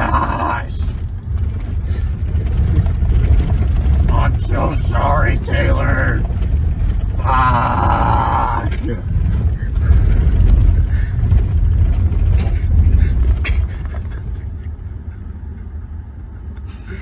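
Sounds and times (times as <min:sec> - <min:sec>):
car knocks and jolts: 0:00.0 - 0:14.7
tyre and suspension rumble: 0:00.0 - 0:17.0.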